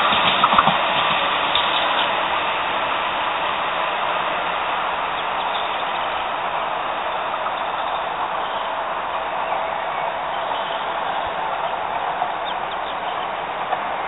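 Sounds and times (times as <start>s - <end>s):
tram rolling over tracks: 0.0s - 14.0s.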